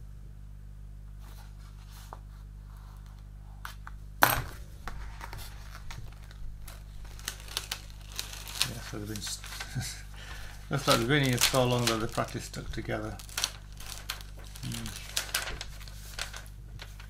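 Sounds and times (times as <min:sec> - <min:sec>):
steady low hum: 0:00.0 - 0:17.0
rustling and scraping of sheet: 0:01.2 - 0:03.1, 0:13.0 - 0:17.0.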